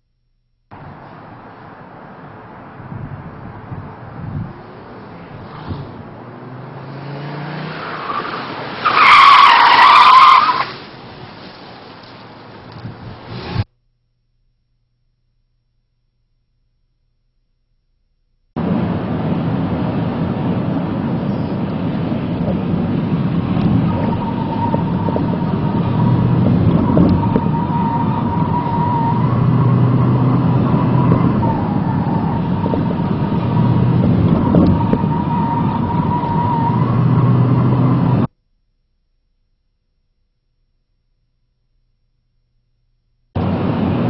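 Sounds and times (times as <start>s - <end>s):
car engine and road noise: 0.0s - 13.8s, 18.2s - 38.4s, 43.3s - 44.0s
tyre squeal: 7.8s - 10.8s, 23.7s - 38.0s.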